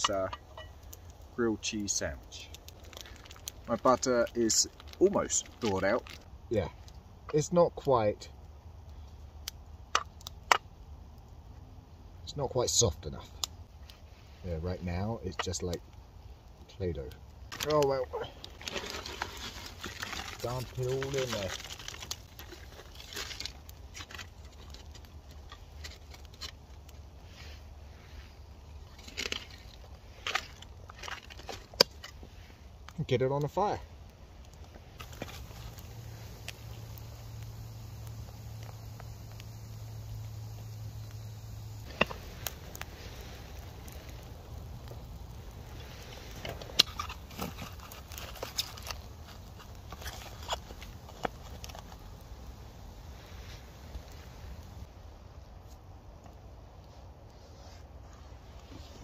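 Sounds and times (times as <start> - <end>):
wood fire crackling and popping: 0.0 - 59.0
low steady rumble: 33.8 - 56.7.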